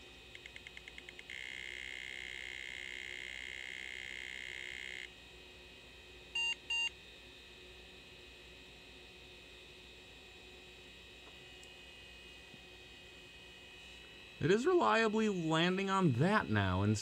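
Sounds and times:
steady high electronic tone: 0:14.4 - 0:17.0.

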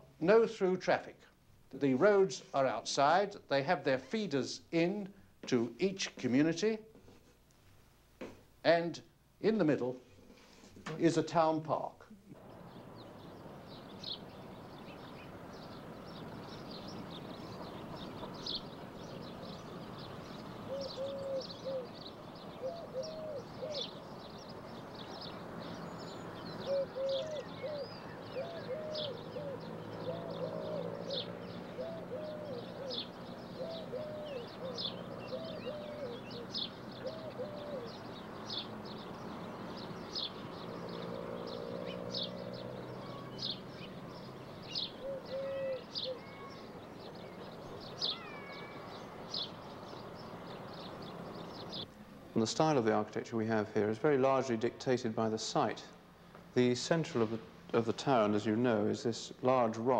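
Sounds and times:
birds chirping: 0:09.4 - 0:59.9
bird cooing: 0:17.5 - 0:40.3, 0:43.0 - 0:49.9.

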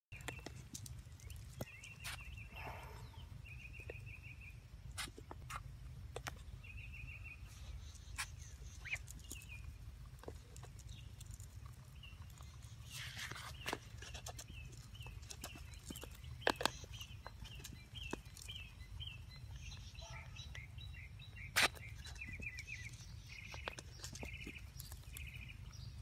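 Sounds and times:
goslings peeping: 0:01.9 - 0:09.6.

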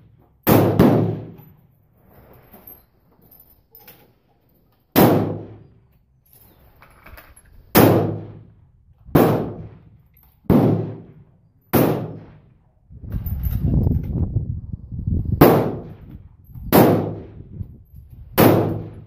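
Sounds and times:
rifle shots echoing: 0:00.4 - 0:01.4, 0:05.0 - 0:05.7, 0:07.8 - 0:08.5, 0:09.1 - 0:12.6, 0:15.4 - 0:16.0, 0:16.7 - 0:17.4, 0:18.4 - 0:19.0.

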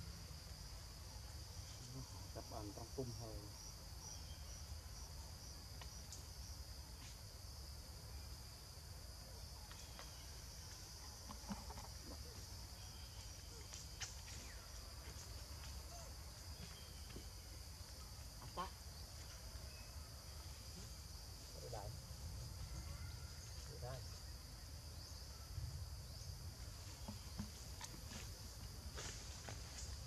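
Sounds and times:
insects buzzing drone: 0:00.0 - 0:30.0
faint chirps and clicks: 0:05.7 - 0:06.3, 0:09.6 - 0:14.7.

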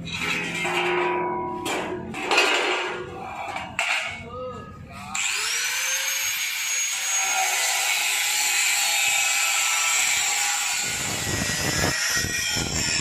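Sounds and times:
angle grinder cutting sheet steel: 0:05.2 - 0:13.0.

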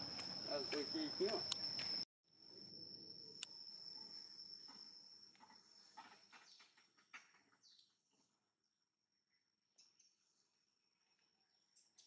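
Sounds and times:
high-pitched insect whine: 0:00.0 - 0:12.0.

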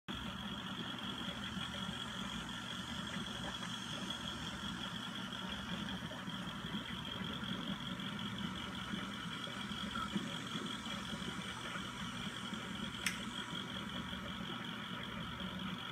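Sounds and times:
aquarium pumps humming: 0:00.1 - 0:15.9
thin high whine: 0:00.2 - 0:15.8.

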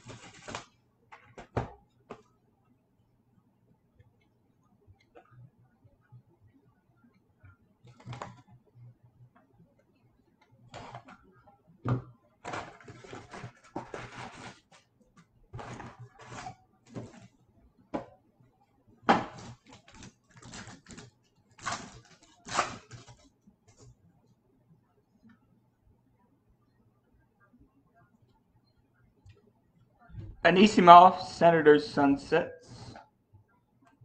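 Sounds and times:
foil packs rustling and crinkling: 0:00.0 - 0:00.7, 0:12.4 - 0:14.9, 0:19.4 - 0:23.2.

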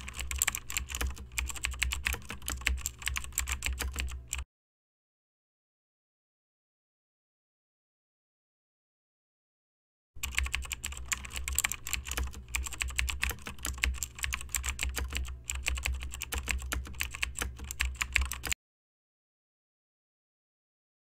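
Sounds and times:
fast keyboard typing: 0:00.0 - 0:04.4, 0:10.2 - 0:18.6.

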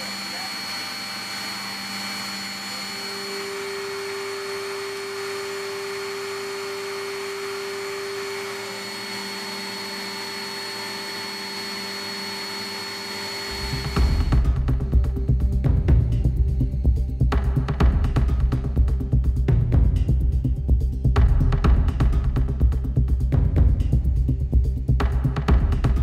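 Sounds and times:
high whining tones: 0:00.0 - 0:15.6
aircraft machinery whir: 0:00.0 - 0:19.5
music with heavy low beat: 0:13.5 - 0:26.0.

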